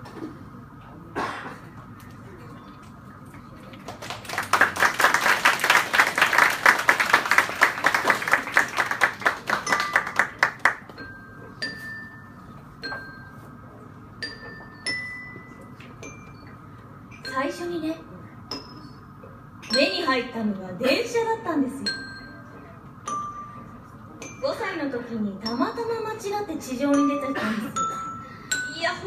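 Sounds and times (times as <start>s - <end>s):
glockenspiel played with mallets: 9.6s - 13.6s, 14.2s - 19.0s, 21.8s - 29.0s.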